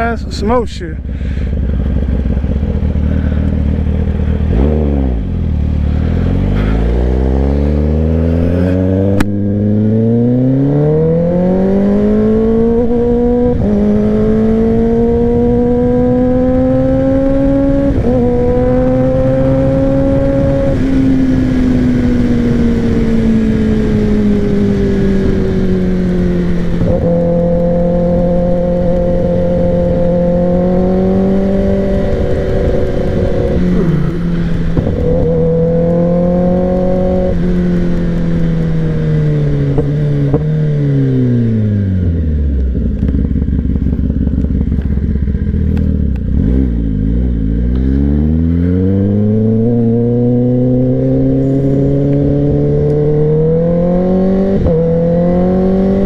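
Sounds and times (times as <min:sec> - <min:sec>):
motorcycle engine revving: 0:01.0 - 0:56.0.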